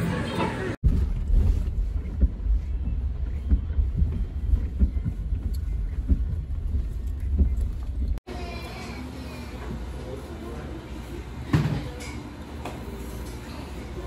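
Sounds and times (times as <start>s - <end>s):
car cabin road rumble: 0.8s - 8.2s.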